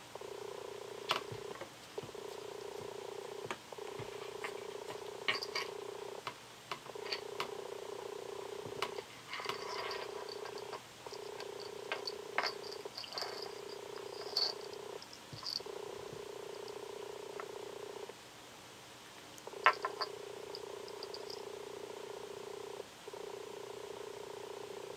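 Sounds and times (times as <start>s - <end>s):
cat purring: 0.0s - 18.2s, 19.4s - 24.9s
light clicks and tinkles: 9.3s - 15.7s.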